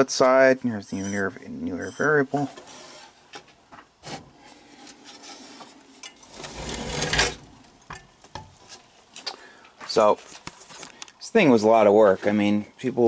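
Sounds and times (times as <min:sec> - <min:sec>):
rubbing and scraping handling noise: 0:00.7 - 0:07.7.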